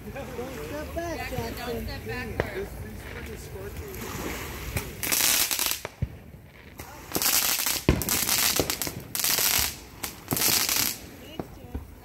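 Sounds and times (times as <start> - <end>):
fireworks hissing whooshes: 1.2 - 12.0
fireworks sharp cracks: 4.6 - 11.9.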